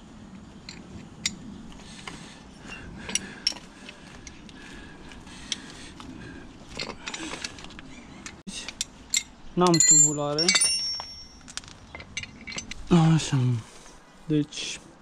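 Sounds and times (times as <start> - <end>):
metal scraping and handling: 0.6 - 4.5, 6.7 - 12.9.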